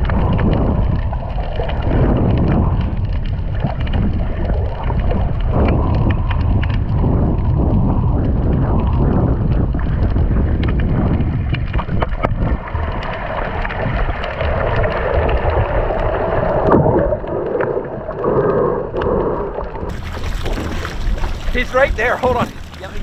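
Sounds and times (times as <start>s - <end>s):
sharp underwater clicks: 0.0s - 23.0s
underwater rumble of moving water: 0.0s - 23.0s.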